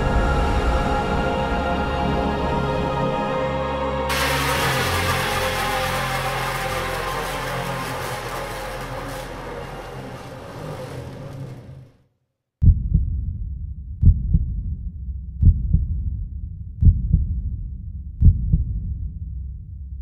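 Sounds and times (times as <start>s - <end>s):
ringing soundtrack music: 4.1s - 11.4s
low heartbeat-like thumps: 12.6s - 20.0s.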